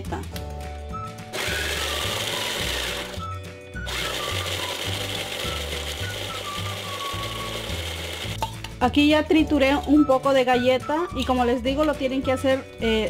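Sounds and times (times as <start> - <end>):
electric food chopper grinding: 1.3 - 8.4.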